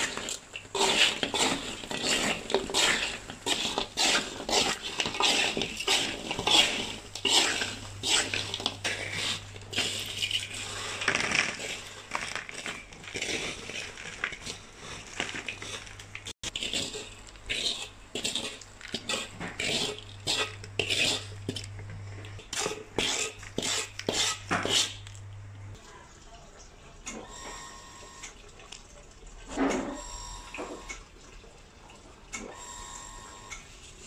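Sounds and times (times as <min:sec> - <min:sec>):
metal spatula scraping a wok: 0:00.0 - 0:21.7, 0:22.4 - 0:25.0.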